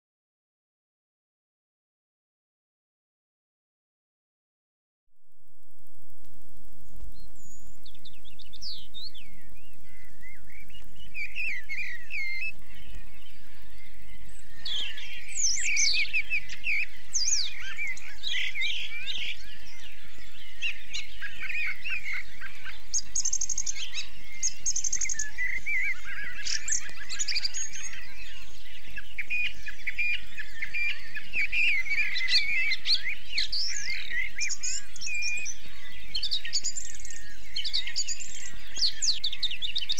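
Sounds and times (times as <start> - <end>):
steady low hum: 5.3 - 14.5
birds singing: 6.8 - 39.9.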